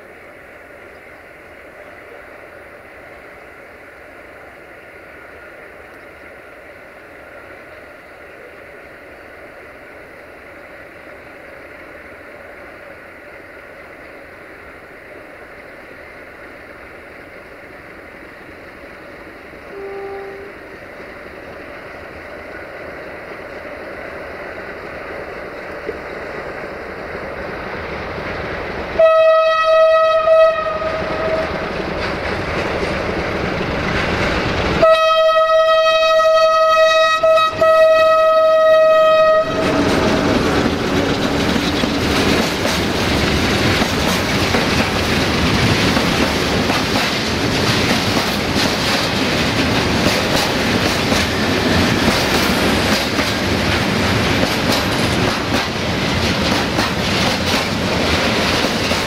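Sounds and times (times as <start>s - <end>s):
train wheel noise: 0.0s - 59.0s
locomotive horn blasts: 19.6s - 20.6s, 29.0s - 31.6s, 34.8s - 39.8s
locomotive engine rumble: 30.1s - 59.0s.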